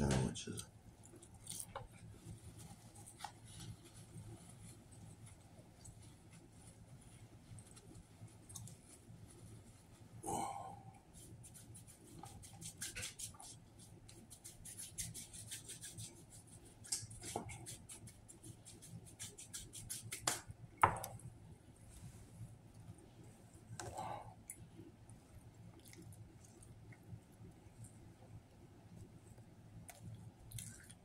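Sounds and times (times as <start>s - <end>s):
hands rubbing together: 11.1s - 20.5s.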